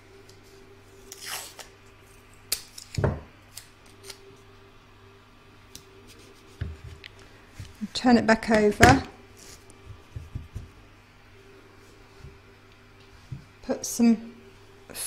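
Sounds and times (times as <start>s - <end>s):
sticky tape ripping: 1.0s - 1.8s.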